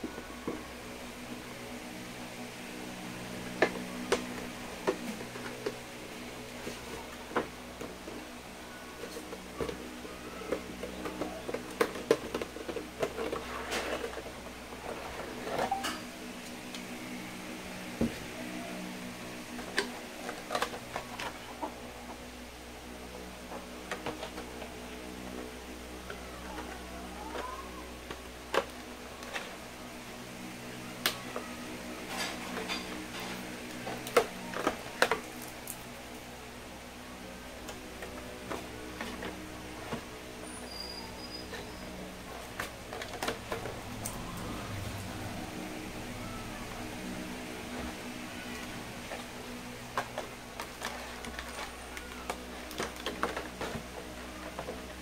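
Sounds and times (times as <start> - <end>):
steady low hum: 0.0 - 55.0
plastic packaging clicks and crinkles: 47.7 - 55.0.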